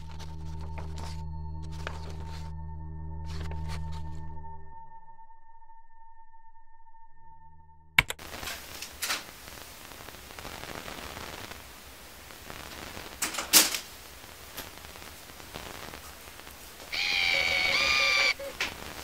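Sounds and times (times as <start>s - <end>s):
steady hiss: 8.2s - 19.0s.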